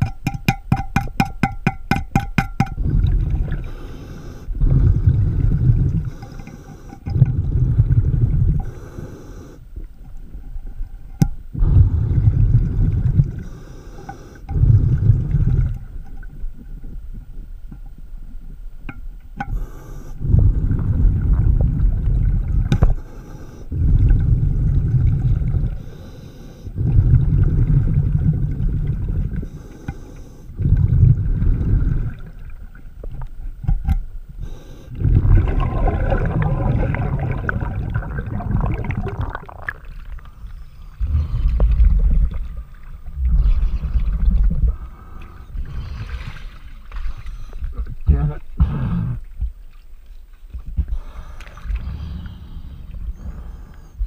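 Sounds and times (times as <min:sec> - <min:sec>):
exhaled bubbles underwater: 0:02.5 - 0:09.0, 0:09.7 - 0:13.6, 0:14.5 - 0:17.4, 0:19.5 - 0:29.6, 0:30.2 - 0:33.7, 0:34.4 - 0:46.9.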